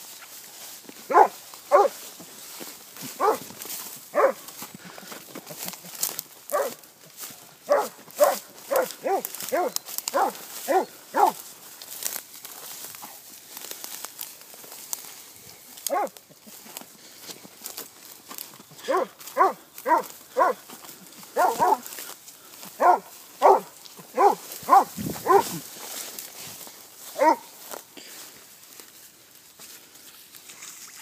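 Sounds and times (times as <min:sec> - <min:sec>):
grass crackling and swishing: 0:00.0 - 0:31.0
dog barking in sharp yelps: 0:01.1 - 0:02.0, 0:03.2 - 0:03.4, 0:04.1 - 0:04.4, 0:06.5 - 0:06.8, 0:07.7 - 0:11.4, 0:15.9 - 0:16.2, 0:18.8 - 0:20.6, 0:21.4 - 0:21.8, 0:22.8 - 0:25.6, 0:27.2 - 0:27.5.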